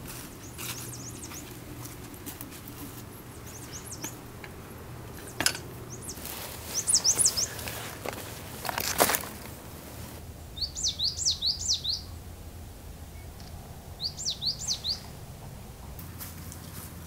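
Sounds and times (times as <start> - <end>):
footsteps crunching dry leaves: 0.0 - 4.1, 6.0 - 10.2
small birds chirping: 0.2 - 9.3, 10.4 - 12.3, 13.1 - 15.3.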